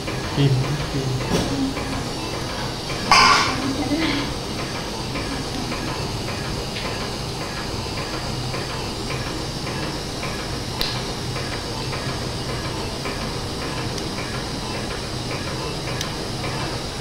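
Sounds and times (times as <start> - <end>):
low hum: 0.0 - 7.1.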